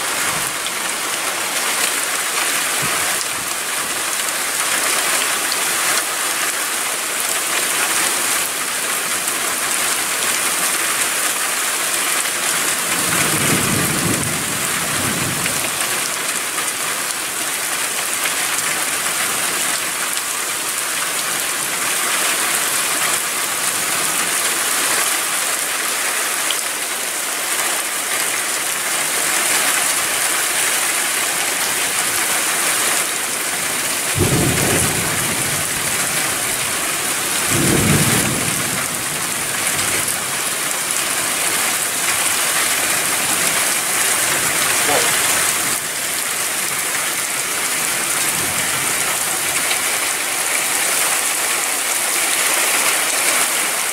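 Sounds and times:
heavy rain falling: 0.0 - 53.9
low rumble of thunder: 13.1 - 15.8, 34.2 - 36.5, 37.4 - 39.4.

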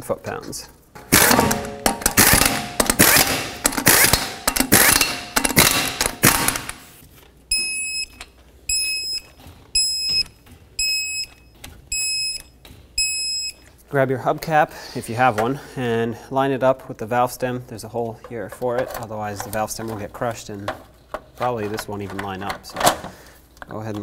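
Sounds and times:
pneumatic impact gun hammering: 1.0 - 6.9.

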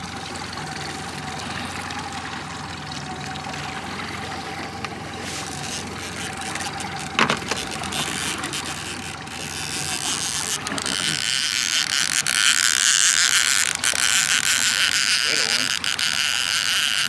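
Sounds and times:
boat motor hum: 0.0 - 17.0.

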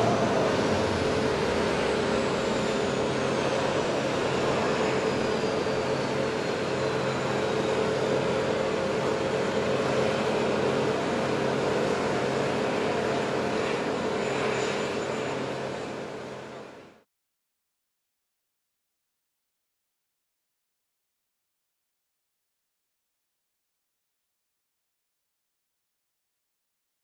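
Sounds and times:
turboprop engines droning: 0.0 - 17.0.

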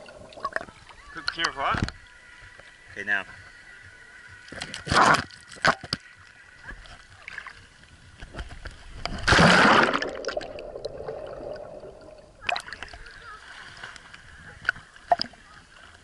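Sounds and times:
water splashing: 0.0 - 2.0, 4.5 - 16.0
water clicks: 0.0 - 2.7, 13.9 - 15.4.

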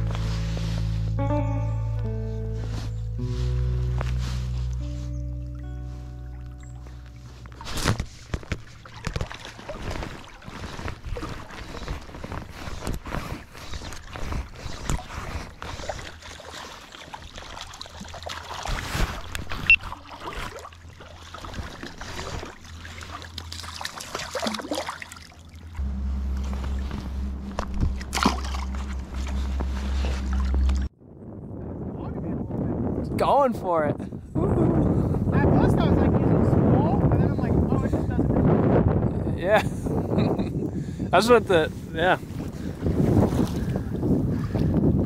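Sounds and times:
low steady hum: 0.0 - 13.0, 13.9 - 31.8
river water splashing: 5.9 - 30.9
fishing gear clicks and knocks: 7.1 - 14.2.

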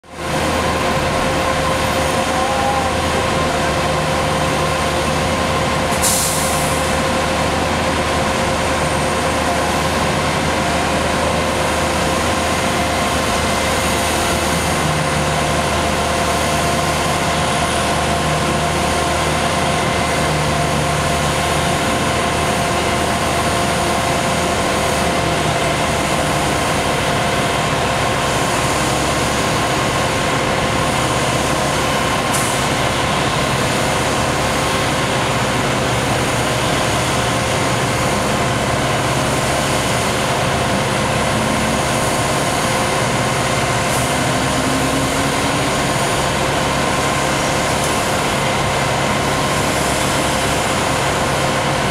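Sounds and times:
heavy diesel truck engines: 0.0 - 51.9
steady mechanical whine: 0.2 - 51.9.

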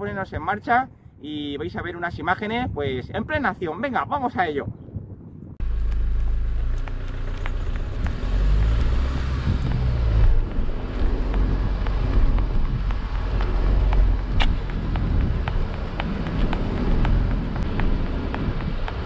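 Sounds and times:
wind rumbling on microphone: 0.0 - 19.0
road and vehicle noise: 5.6 - 19.0.

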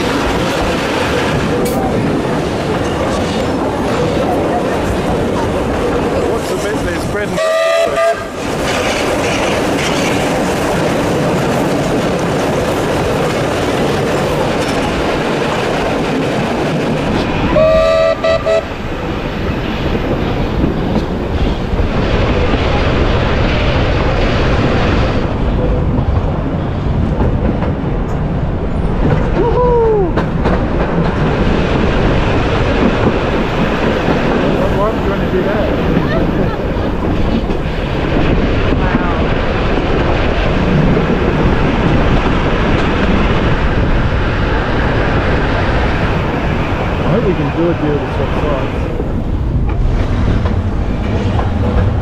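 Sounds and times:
train wheels clickety-clack: 0.0 - 52.0
steam train whistle blast: 7.4 - 8.3, 17.6 - 18.7.

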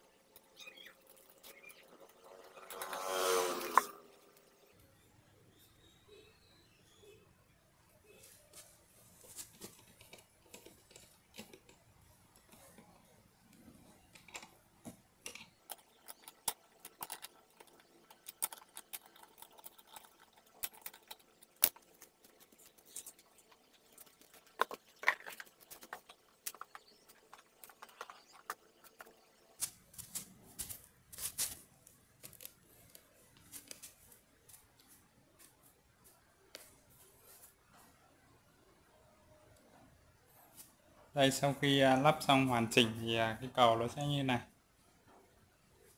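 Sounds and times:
soft handling rustle: 8.1 - 14.1, 21.8 - 38.1.

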